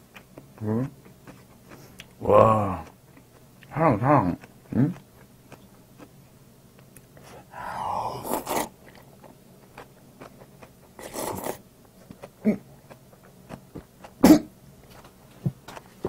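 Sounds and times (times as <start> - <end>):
slurping noodles: 7.2 - 9.0, 11.0 - 11.6
person coughing: 14.2 - 14.5.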